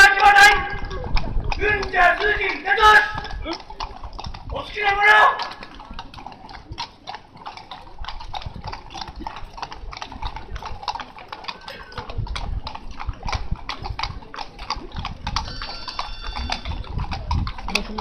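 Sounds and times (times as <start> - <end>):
horse hooves clopping on road: 0.0 - 18.0.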